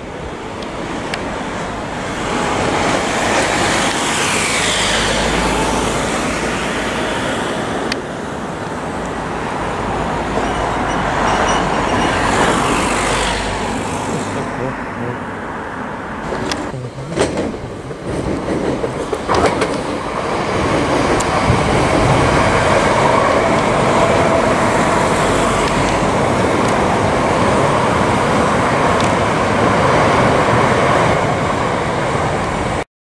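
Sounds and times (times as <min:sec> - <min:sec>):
train wheels rumbling on rails: 0:00.0 - 0:14.7, 0:16.2 - 0:32.8.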